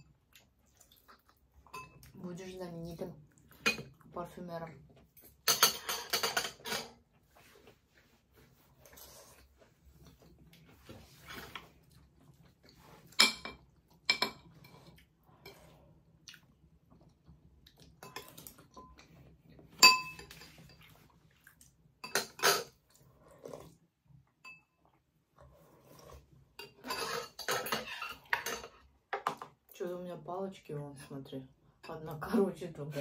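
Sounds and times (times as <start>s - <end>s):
spoons clinking on ceramic dishes: 1.7s - 2.0s, 5.2s - 6.9s, 19.8s - 20.8s, 22.0s - 22.7s, 26.6s - 28.8s.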